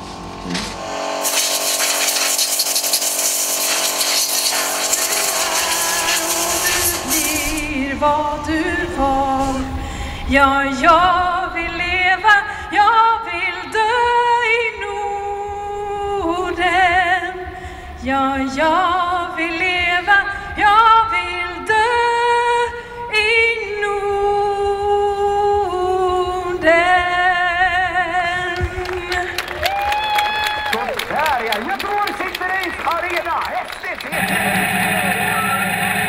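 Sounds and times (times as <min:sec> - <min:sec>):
person singing with vibrato: 0:05.8 - 0:28.5.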